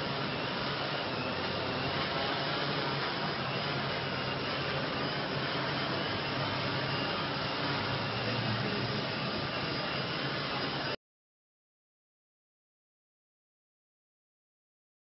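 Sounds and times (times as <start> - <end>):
drone propellers whirring: 0.0 - 11.0.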